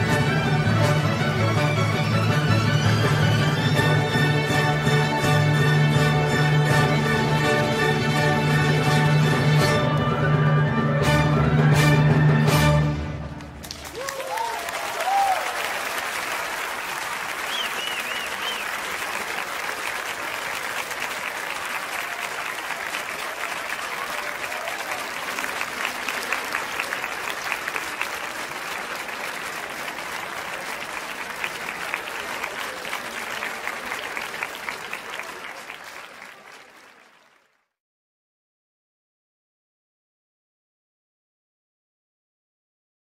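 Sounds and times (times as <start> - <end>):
large crowd applauding: 13.2 - 37.8.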